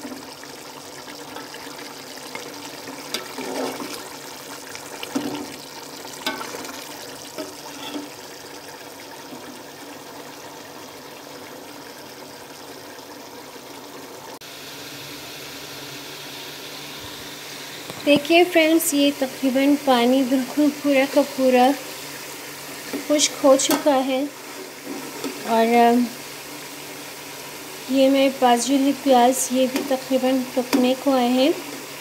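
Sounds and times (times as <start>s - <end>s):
broth bubbling in a pot: 0.0s - 32.0s
metal spoon scraping a pot: 7.4s - 8.2s.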